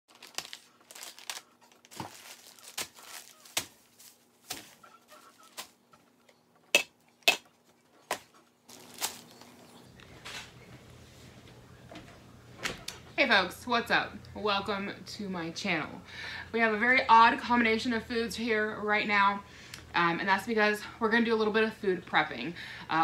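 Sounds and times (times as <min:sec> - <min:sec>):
plastic bags crinkling: 0:00.1 - 0:05.8, 0:07.6 - 0:09.8.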